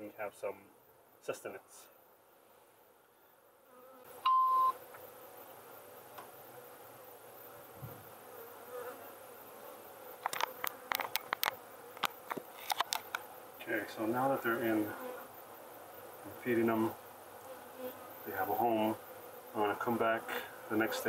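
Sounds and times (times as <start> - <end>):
bees buzzing: 2.2 - 21.0
short electronic beep: 4.2 - 4.8
camera handling clicks and knocks: 10.2 - 13.2.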